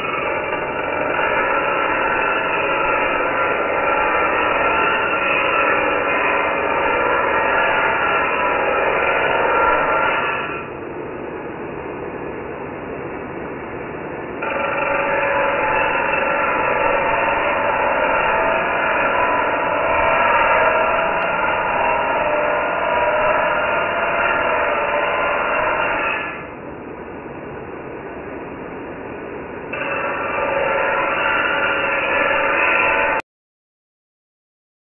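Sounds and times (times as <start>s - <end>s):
angle grinder grinding steel: 0.0s - 10.7s, 14.4s - 26.6s, 29.7s - 33.2s.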